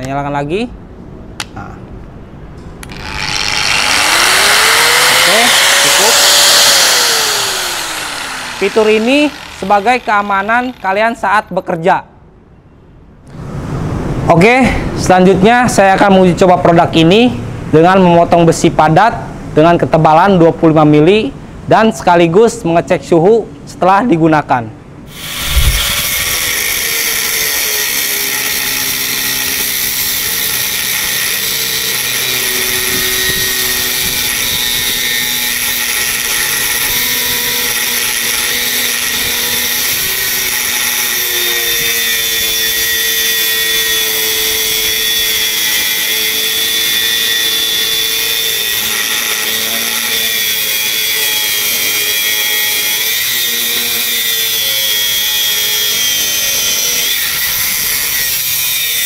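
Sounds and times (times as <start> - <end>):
angle grinder cutting steel: 2.8 - 11.2, 25.1 - 59.0.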